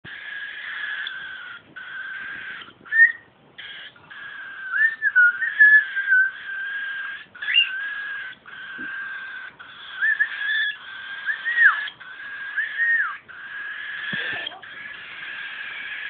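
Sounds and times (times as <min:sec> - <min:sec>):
cockatiel chicks calling: 0:00.0 - 0:16.0
rising whistles: 0:02.9 - 0:03.3, 0:04.7 - 0:06.4, 0:10.0 - 0:11.9, 0:12.6 - 0:13.2.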